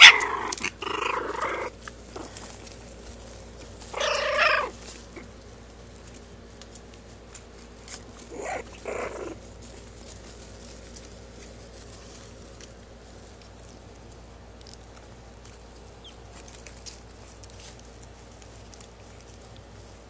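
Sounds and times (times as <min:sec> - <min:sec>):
puppy growling: 0:00.0 - 0:02.8, 0:03.6 - 0:05.4, 0:08.1 - 0:10.0.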